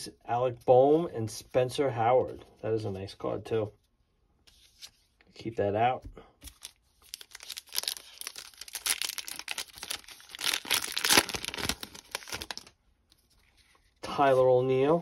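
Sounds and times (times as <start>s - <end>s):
paper wrapper tearing and crinkling: 6.5s - 12.8s.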